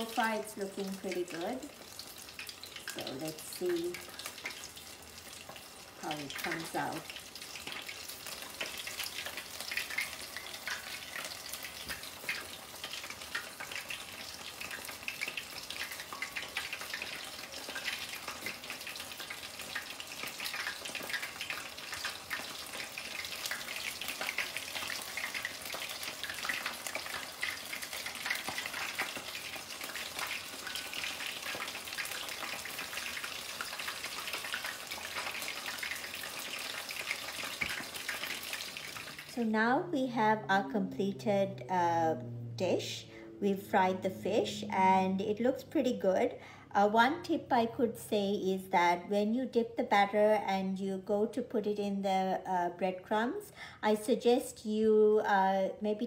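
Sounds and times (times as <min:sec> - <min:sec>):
fish deep-frying in oil: 0:00.0 - 0:41.5.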